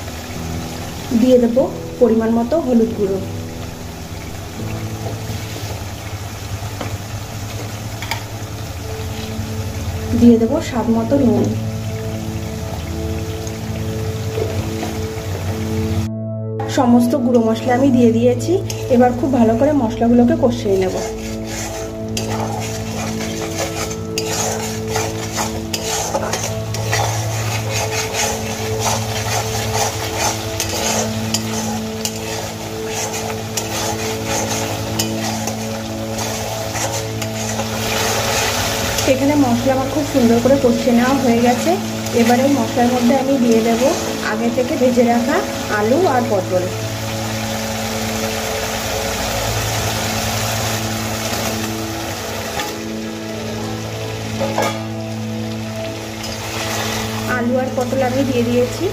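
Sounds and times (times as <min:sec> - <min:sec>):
oil sizzling: 0:00.0 - 0:58.9
metal spatula scraping pan: 0:20.8 - 0:39.2, 0:54.4 - 0:55.0.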